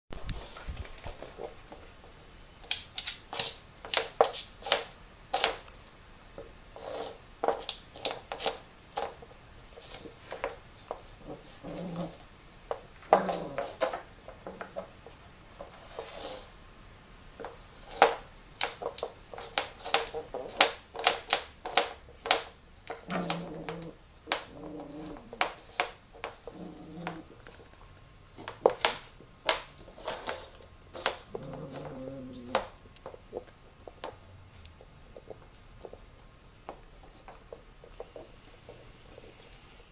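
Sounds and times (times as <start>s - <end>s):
dog gnawing bone on wooden floor: 17.9s - 27.8s, 28.4s - 36.0s.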